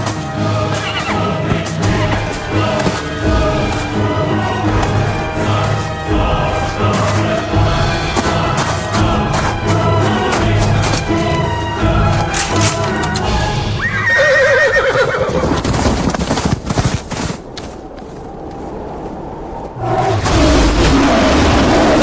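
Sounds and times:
horse whinnying: 13.8 - 15.6.

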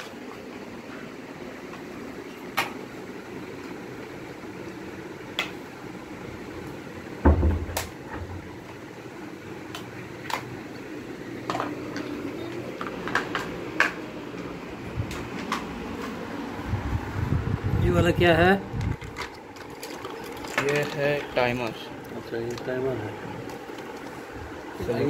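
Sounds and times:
steady low hum: 0.0 - 25.0
plastic parts clicking and knocking: 18.8 - 21.4.

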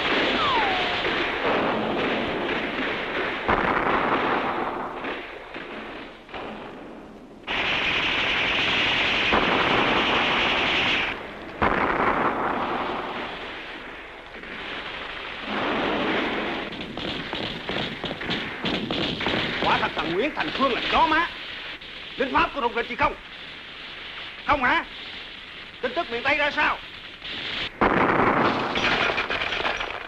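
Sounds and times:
machine-gun and rifle fire: 0.0 - 30.0.

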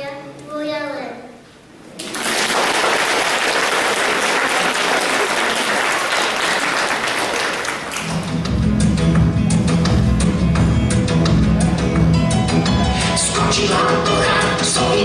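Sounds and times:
audience applauding: 2.0 - 8.4.

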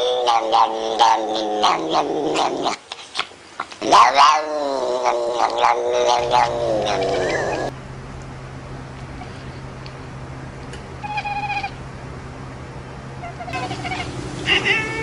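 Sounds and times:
cat yowling: 3.9 - 7.7, 11.0 - 11.8, 13.3 - 14.1.

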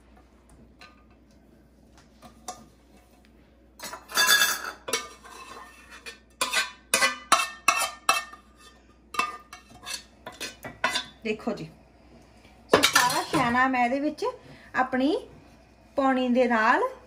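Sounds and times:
metal ladle scraping a pot: 3.8 - 11.1.

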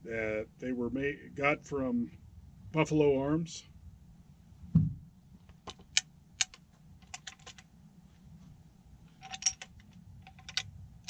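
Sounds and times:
sharp metallic rifle clicks: 5.7 - 7.6, 9.2 - 10.7.

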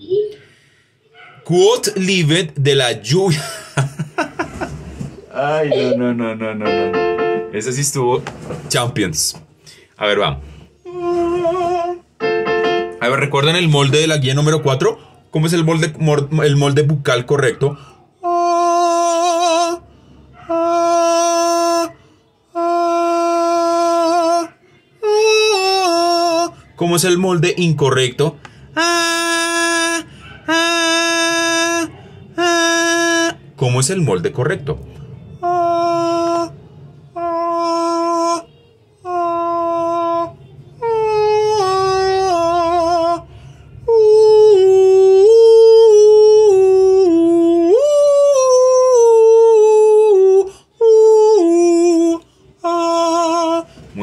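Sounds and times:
man singing a held vowel: 5.6 - 7.6, 10.8 - 13.9, 18.2 - 19.9, 20.5 - 28.0, 28.7 - 34.2, 35.4 - 54.0.

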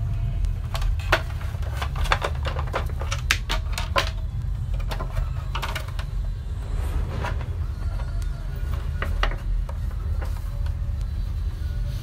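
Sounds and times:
steady low hum: 4.2 - 12.0.

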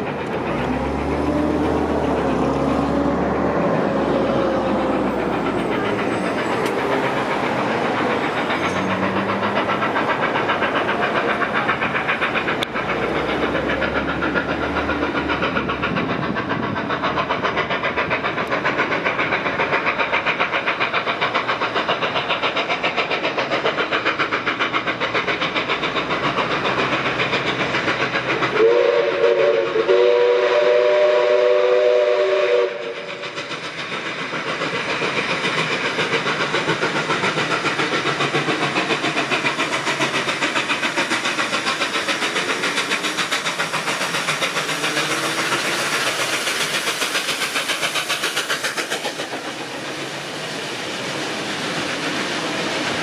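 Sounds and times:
steam locomotive chuffing: 0.0 - 53.0
steam whistle chord: 28.6 - 32.9.

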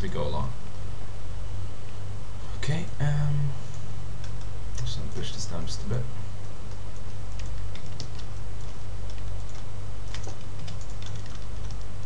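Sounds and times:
low hum: 0.0 - 12.0
keyboard and mouse clicking: 6.7 - 11.9.

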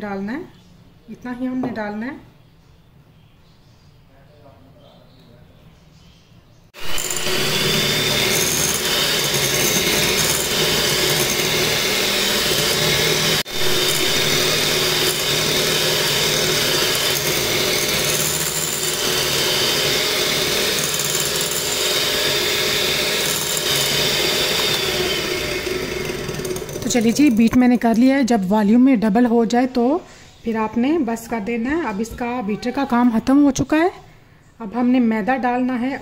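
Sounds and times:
electric hand mixer whisking: 6.8 - 28.2.

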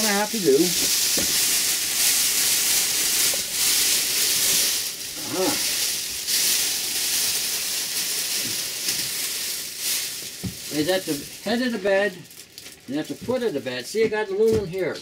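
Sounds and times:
foil blankets crinkling: 0.0 - 15.0
brief vocal sound: 5.2 - 5.7.

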